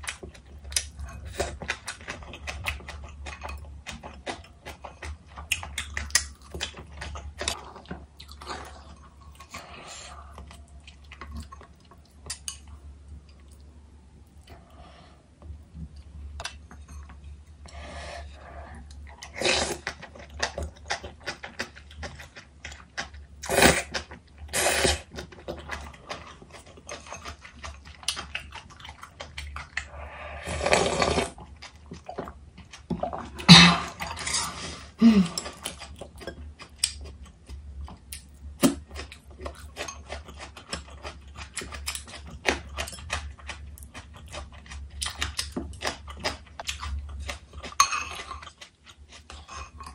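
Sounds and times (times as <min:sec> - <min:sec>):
chewing and crunching: 0:00.0 - 0:14.8, 0:15.6 - 0:49.9
slurping broth: 0:23.4 - 0:25.1, 0:29.8 - 0:31.4.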